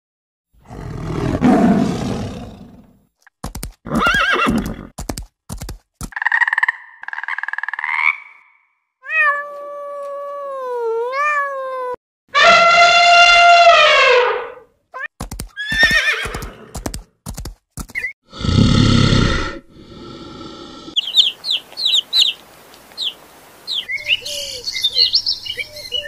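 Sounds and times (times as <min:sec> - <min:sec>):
tiger growling roar: 0:00.6 - 0:03.0, 0:18.3 - 0:21.0.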